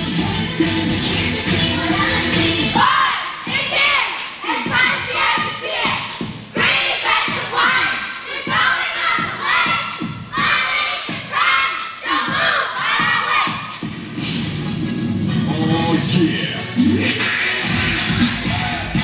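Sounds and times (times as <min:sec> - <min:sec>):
cheerleaders shouting a chant: 0:01.8 - 0:13.8.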